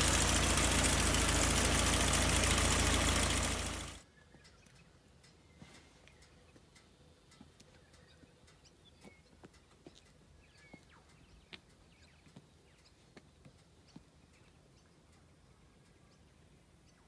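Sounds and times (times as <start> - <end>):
soft ticks: 4.4 - 16.0.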